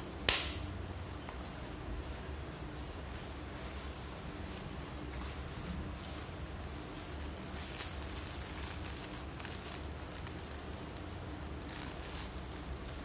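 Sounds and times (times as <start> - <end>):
steady low hum: 0.0 - 13.0
plastic bag crinkling: 3.3 - 13.0.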